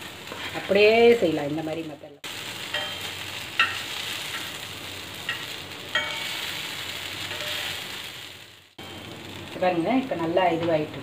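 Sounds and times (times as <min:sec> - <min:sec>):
cutlets sizzling in oil: 0:00.0 - 0:11.0
metal knife clinking on pan: 0:02.7 - 0:04.5, 0:05.3 - 0:06.4.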